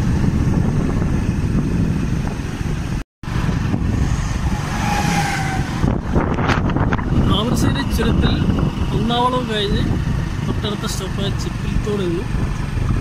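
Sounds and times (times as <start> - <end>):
vehicle rumble: 0.0 - 13.0
wind buffeting microphone: 0.0 - 13.0.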